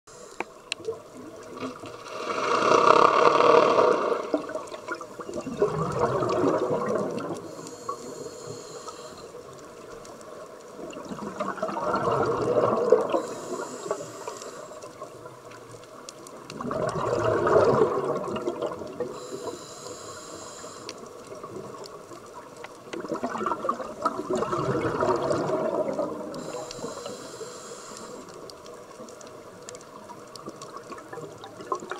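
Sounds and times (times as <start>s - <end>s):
regulator hiss on inhale: 0.1s - 0.7s, 7.4s - 9.8s, 13.1s - 15.0s, 19.1s - 21.2s, 26.3s - 28.7s
bubbling exhalations underwater: 2.4s - 7.4s, 11.0s - 13.2s, 16.5s - 19.1s, 23.0s - 26.4s.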